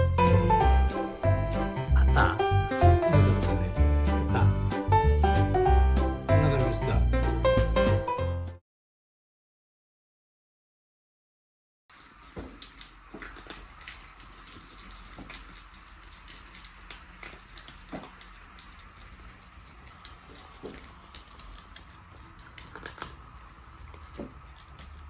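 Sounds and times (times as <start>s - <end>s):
cats crunching dry kibble: 11.9s - 25.0s.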